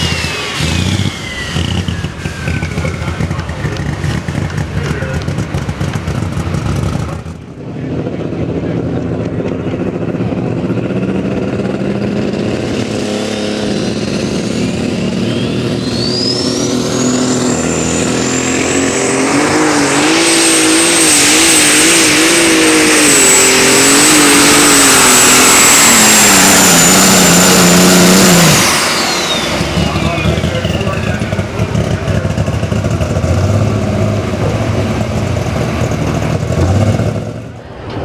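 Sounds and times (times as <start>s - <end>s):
turbo whine: 0.0s - 3.8s, 11.9s - 31.7s
tractor engine at full throttle: 0.0s - 38.0s.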